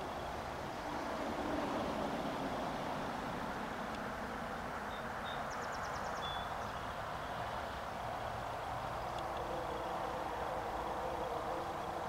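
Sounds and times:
distant freight train rumble: 7.9 - 12.0.

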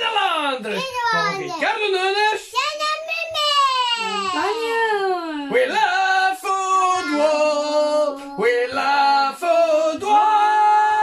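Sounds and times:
man and woman singing: 4.0 - 11.0.

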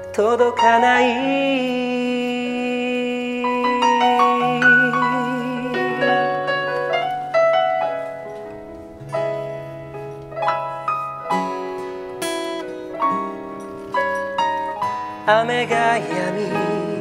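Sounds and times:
person singing with vibrato: 0.0 - 7.4, 15.1 - 17.0
acoustic guitar: 0.0 - 17.0
stage piano melody: 0.0 - 17.0.

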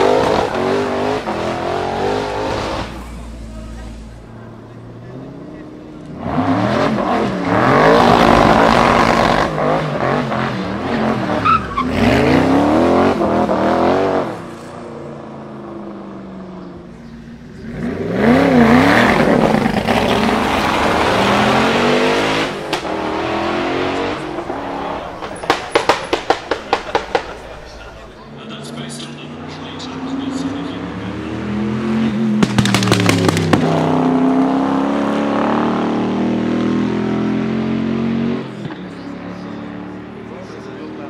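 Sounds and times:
car engine revving hard: 0.0 - 4.3, 4.9 - 14.6, 17.4 - 28.1, 29.4 - 38.7
tyres squealing: 10.8 - 12.7.

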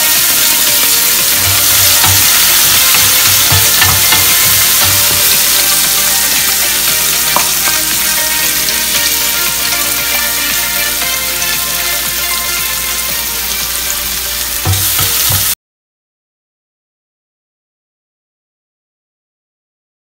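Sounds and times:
onion and garlic sizzling in oil: 0.0 - 15.6
wooden spatula stirring in wok: 0.2 - 7.8.

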